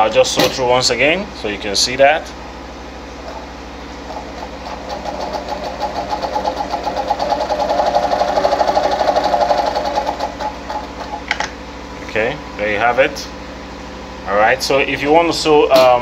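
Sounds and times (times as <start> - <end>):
sewing machine clatter: 4.1 - 11.4.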